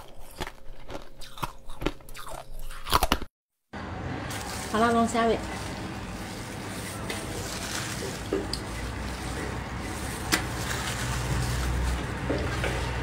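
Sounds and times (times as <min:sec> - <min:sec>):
wet sucking and chewing: 0:00.0 - 0:03.3.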